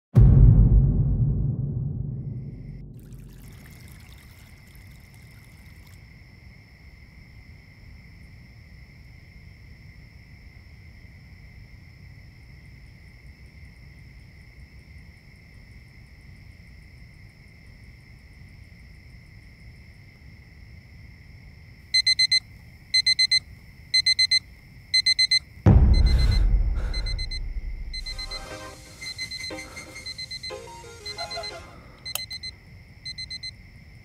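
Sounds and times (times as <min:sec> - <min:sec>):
loud deep boom: 0:00.2 - 0:04.0, 0:25.7 - 0:28.3
digital alarm clock beeping: 0:22.0 - 0:22.4, 0:23.0 - 0:23.4, 0:24.0 - 0:24.4, 0:25.0 - 0:32.5, 0:33.1 - 0:33.5
faint high tones: 0:25.7 - 0:32.5.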